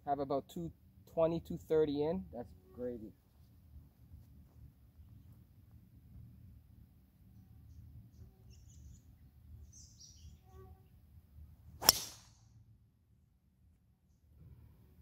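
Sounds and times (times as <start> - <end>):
golf driver striking ball: 11.8 - 12.4.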